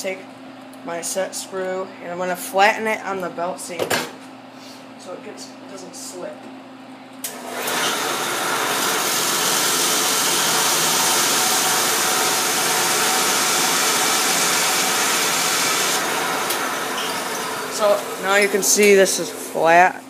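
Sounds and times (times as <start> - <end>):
belt sander motor hum: 7.3 - 19.7
metal grinding hiss: 12.8 - 18.8.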